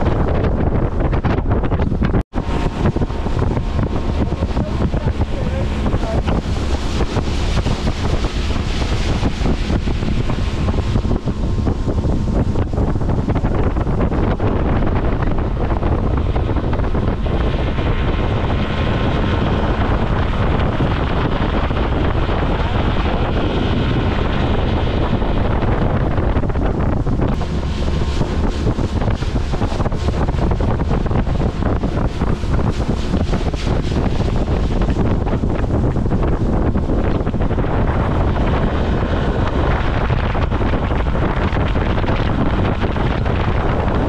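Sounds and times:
motorboat running: 0.0s - 44.0s
water rushing past hull: 0.0s - 44.0s
wind buffeting microphone: 0.0s - 44.0s.

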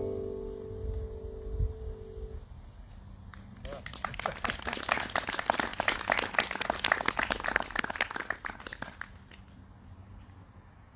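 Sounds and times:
small group clapping: 3.3s - 9.6s.

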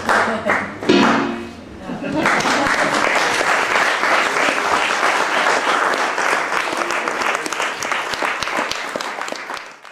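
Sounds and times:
audience applauding: 2.1s - 9.9s.

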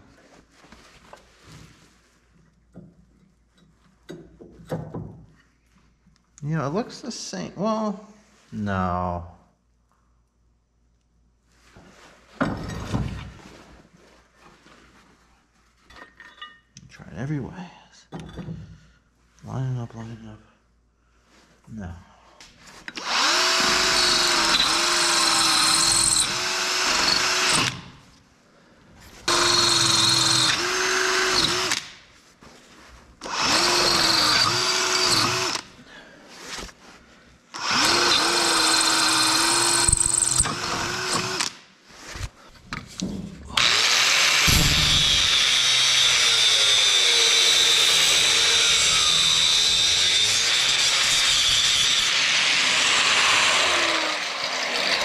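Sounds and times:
cordless drill drilling: 23.0s - 27.9s, 29.3s - 31.9s, 33.2s - 35.7s, 37.6s - 41.6s, 43.6s - 55.0s
angle grinder grinding steel: 43.6s - 55.0s.

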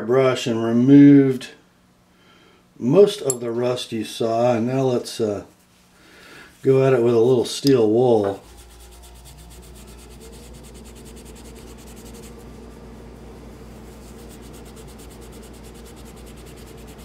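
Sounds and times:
steel wool scrubbing metal: 8.0s - 17.0s.

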